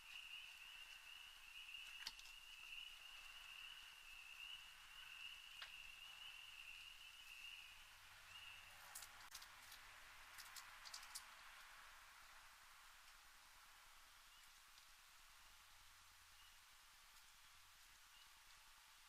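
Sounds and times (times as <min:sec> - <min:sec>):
faint clicks: 0:01.8 - 0:02.4.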